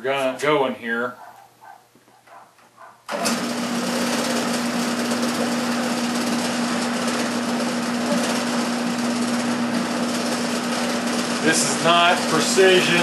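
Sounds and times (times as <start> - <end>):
drill motor humming: 3.1 - 13.0
drill bit cutting steel tubing: 3.2 - 13.0.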